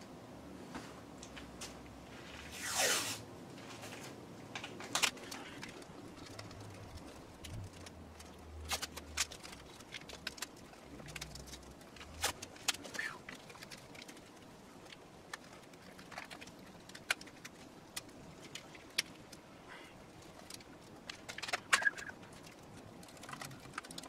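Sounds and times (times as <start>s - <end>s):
tape ripped off roll: 2.4s - 3.2s.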